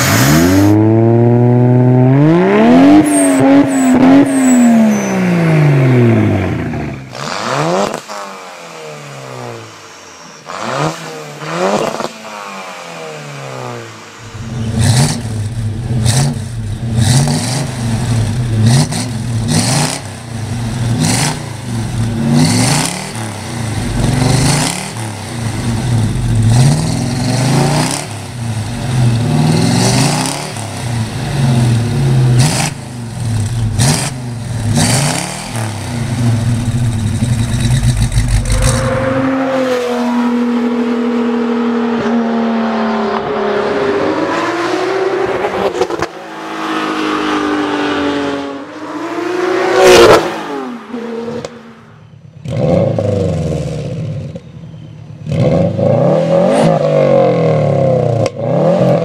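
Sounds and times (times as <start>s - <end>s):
truck engine revving: 0.0s - 9.7s, 10.4s - 51.7s
car engine revving: 0.0s - 54.2s
sports car accelerating past: 37.6s - 51.8s.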